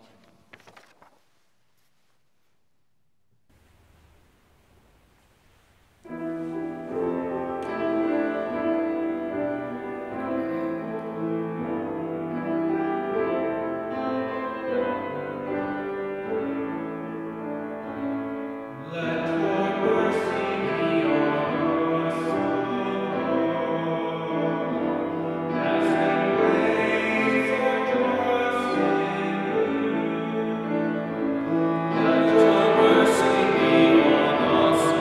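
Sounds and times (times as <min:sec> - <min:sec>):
person singing: 0:18.8 - 0:35.0.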